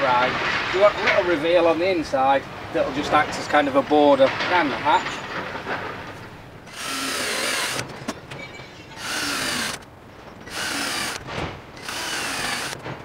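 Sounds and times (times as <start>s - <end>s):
cordless drill whining: 6.7s - 7.9s, 9.0s - 9.8s, 10.4s - 11.2s, 11.8s - 12.8s.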